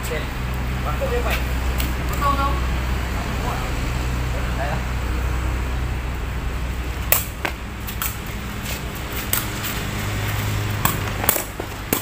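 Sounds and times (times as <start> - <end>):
low hum of traffic: 0.0 - 12.0
ball struck sharp knocks: 7.0 - 8.2, 10.8 - 12.0.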